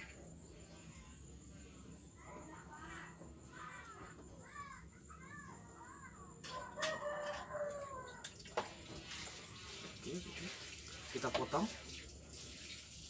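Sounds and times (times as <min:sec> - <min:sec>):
rooster crowing: 0:06.4 - 0:08.4.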